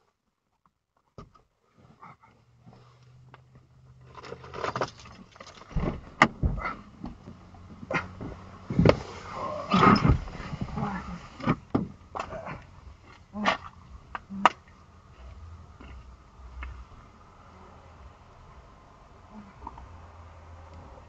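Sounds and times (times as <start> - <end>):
knocks and clicks in car cabin: 5.7 - 9.0, 11.4 - 12.3.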